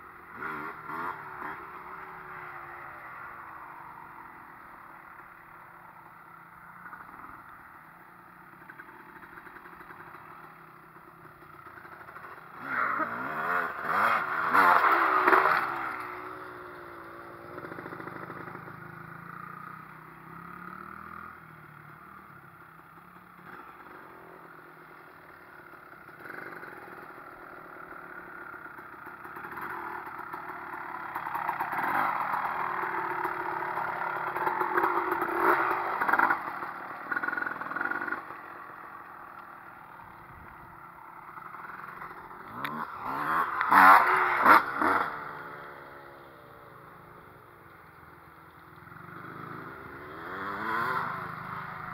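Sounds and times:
dirt bike engines revving: 0.0s - 51.9s.

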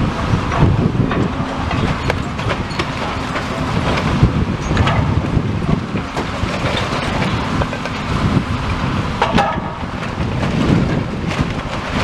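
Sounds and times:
excavator engine rumble: 0.0s - 12.0s
wind buffeting microphone: 0.0s - 12.0s
debris clattering: 9.2s - 12.0s.

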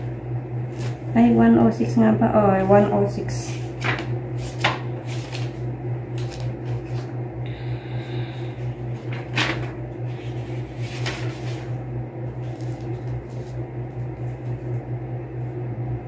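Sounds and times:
low room hum: 0.0s - 16.0s
paper pages rustling: 0.7s - 1.1s, 2.6s - 7.1s, 8.9s - 14.8s.

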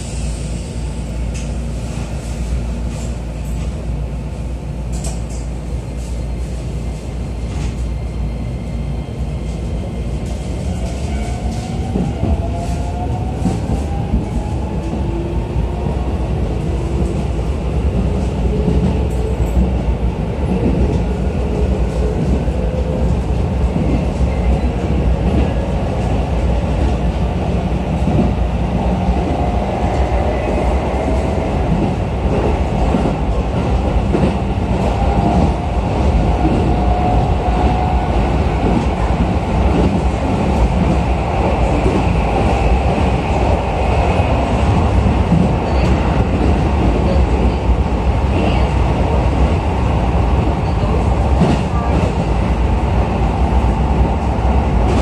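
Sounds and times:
train wheels rumbling on rail: 0.0s - 55.0s
rail-joint clicks: 4.9s - 5.5s.

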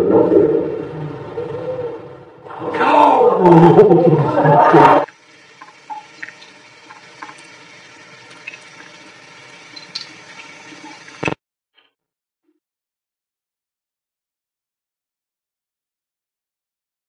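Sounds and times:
loud drawn-out cry: 2.5s - 5.1s
tap water running into sink: 5.1s - 11.4s
water dripping: 5.1s - 11.4s.

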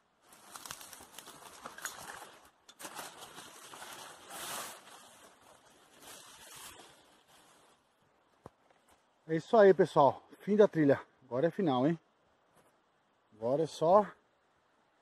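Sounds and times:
leaves and branches rustling: 0.0s - 10.0s.

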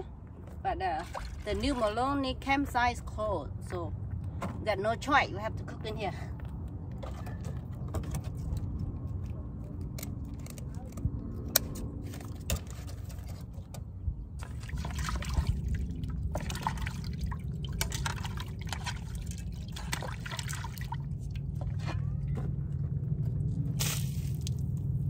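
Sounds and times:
liquid trickling and dribbling: 1.0s - 2.2s, 14.4s - 22.3s, 23.8s - 25.0s
low hum: 6.2s - 25.0s.

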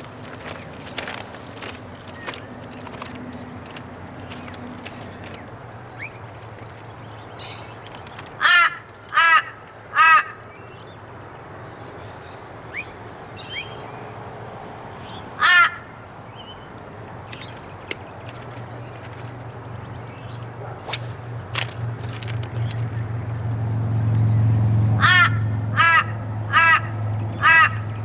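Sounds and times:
crow cawing: 8.4s - 10.4s, 15.4s - 15.9s, 25.0s - 27.9s.

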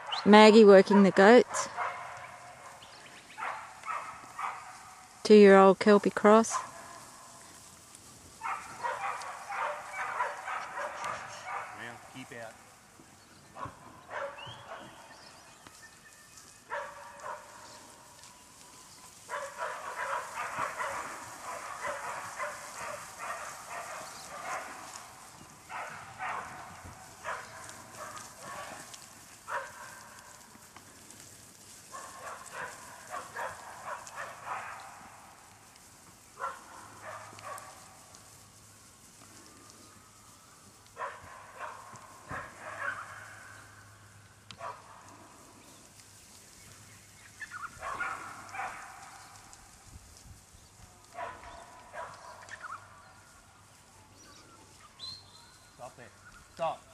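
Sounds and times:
dog barking: 0.9s - 5.1s, 6.5s - 7.3s, 8.4s - 12.1s, 13.5s - 15.0s, 16.7s - 17.8s, 19.3s - 28.9s, 29.5s - 30.4s, 31.9s - 35.1s, 36.4s - 38.0s, 41.0s - 43.6s, 44.6s - 45.0s, 47.6s - 49.3s, 51.1s - 52.8s.

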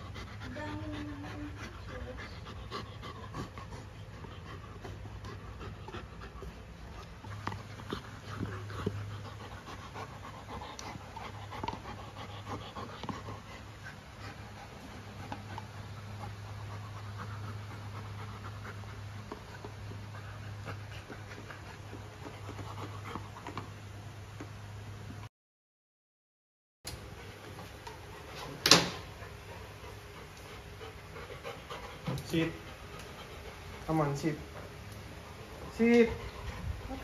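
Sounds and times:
dog panting: 0.0s - 24.5s, 27.0s - 37.0s
dog gnawing on horn chew: 2.3s - 24.5s.

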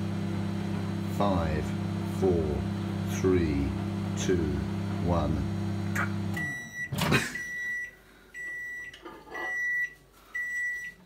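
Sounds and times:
microwave oven beeping: 3.8s - 11.0s.

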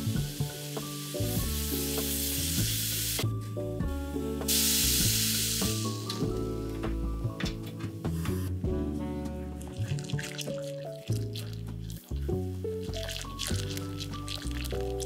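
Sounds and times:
syrup sizzling in a saucepan: 0.0s - 3.2s, 4.5s - 6.4s, 9.6s - 15.0s
background music: 0.0s - 15.0s.

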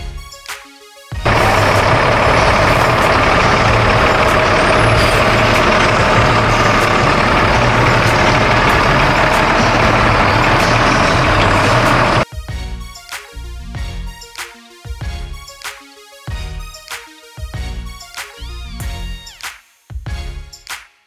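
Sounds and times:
truck diesel engine running: 1.2s - 12.2s.

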